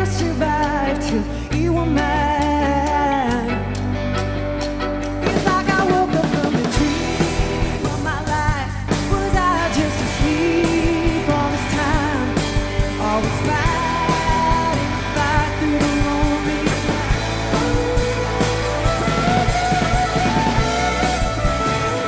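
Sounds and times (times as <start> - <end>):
drums: 0.0 - 22.0
electric guitar: 0.0 - 22.0
fiddle playing with vibrato: 16.9 - 22.0.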